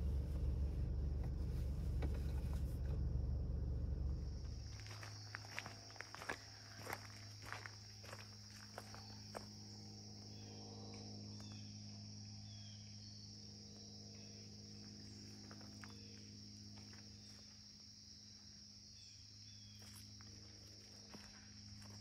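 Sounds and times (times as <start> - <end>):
insect chorus buzzing: 1.6 - 22.0
soft footsteps on trail: 4.3 - 11.6, 14.8 - 18.5, 19.5 - 22.0.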